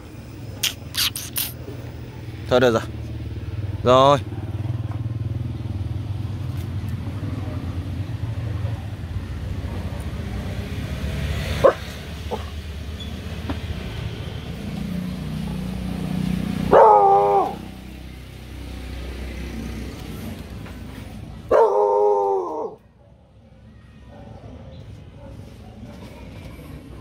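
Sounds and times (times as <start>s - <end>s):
motorbike: 0.0s - 27.0s
street traffic rumble: 0.0s - 27.0s
puppy barking: 11.5s - 12.6s, 16.6s - 17.8s, 21.5s - 23.3s, 24.0s - 26.4s.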